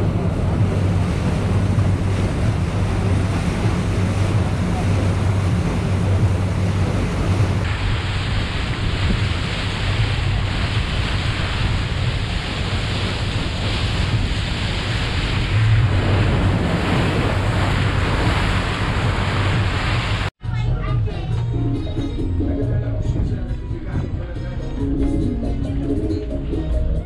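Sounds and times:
wind buffeting microphone: 0.0s - 20.3s
boat engine drone: 0.0s - 27.0s
wake rushing along hull: 0.0s - 27.0s.

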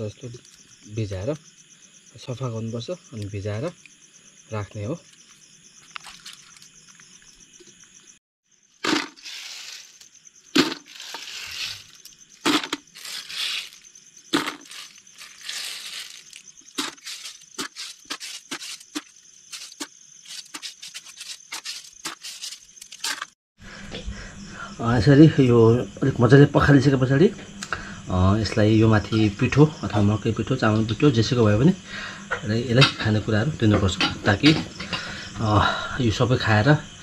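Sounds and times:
insects chirping: 0.0s - 37.0s
snail shells clinking: 8.8s - 23.2s.

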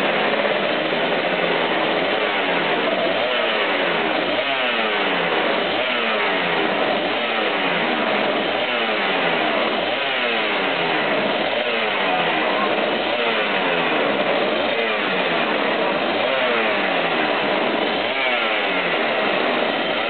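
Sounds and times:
two-stroke engine revving: 0.0s - 20.0s.

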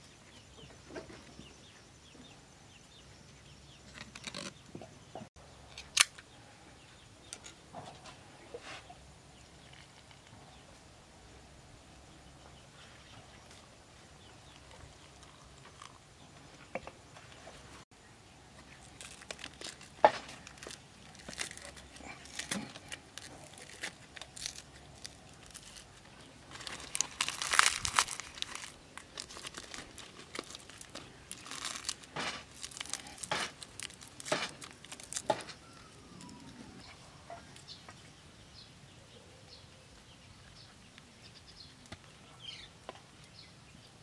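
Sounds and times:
leaves crinkling: 18.5s - 36.8s.

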